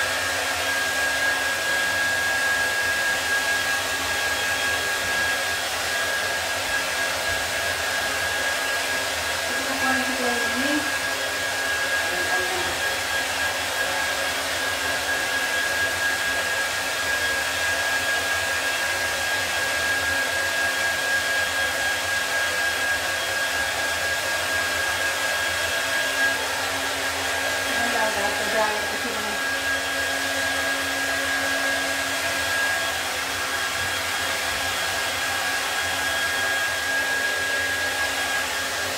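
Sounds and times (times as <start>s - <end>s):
hair dryer blowing: 0.0s - 38.9s.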